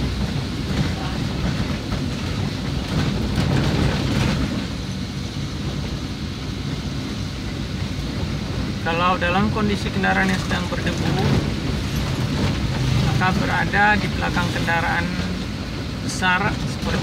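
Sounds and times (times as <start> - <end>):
vehicle driving on dirt road: 0.0 - 17.0
rattling and knocking: 0.6 - 4.7.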